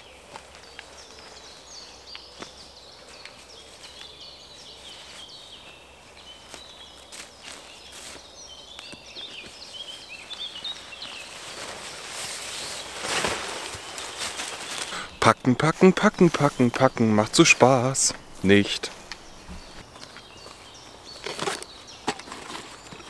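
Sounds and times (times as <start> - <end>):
footsteps in dry leaves: 0.0 - 15.2, 16.0 - 23.0
small birds chirping: 0.0 - 23.0
tent fabric rustling: 9.2 - 22.9.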